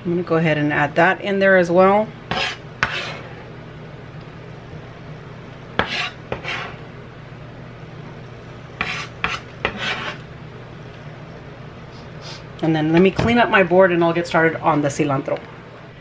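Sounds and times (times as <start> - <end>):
low steady hum: 0.0 - 16.0
knife scraping on cutting board: 2.3 - 3.5, 5.8 - 6.8, 8.8 - 10.2.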